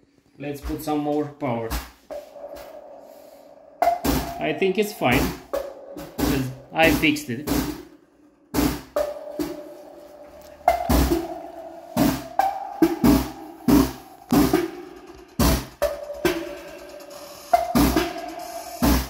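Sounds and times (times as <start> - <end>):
drum-heavy music: 3.8 - 8.0, 8.6 - 19.0.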